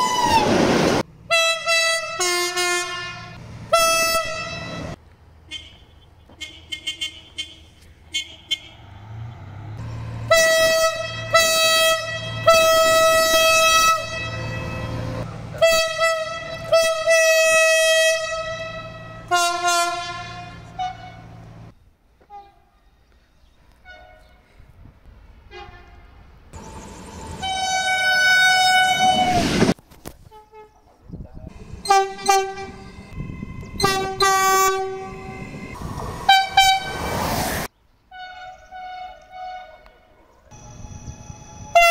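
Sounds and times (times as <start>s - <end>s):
train rumbling: 0.0s - 5.0s, 8.0s - 21.8s, 24.8s - 29.8s, 31.2s - 37.7s, 40.5s - 41.9s
train horn blasts: 1.3s - 8.9s, 10.2s - 21.4s, 25.5s - 26.2s, 27.3s - 29.6s, 31.6s - 37.1s, 38.1s - 41.9s.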